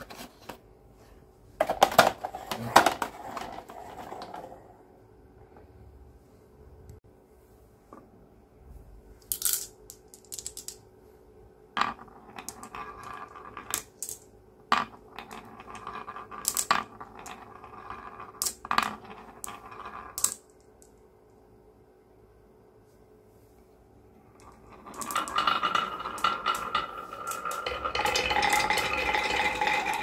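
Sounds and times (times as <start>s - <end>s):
marbles rolling on wooden track: 1.6s - 4.7s, 9.3s - 10.8s, 11.8s - 21.0s, 24.3s - 30.0s
marbles clacking together: 9.3s - 10.8s, 11.8s - 20.9s, 24.4s - 30.0s.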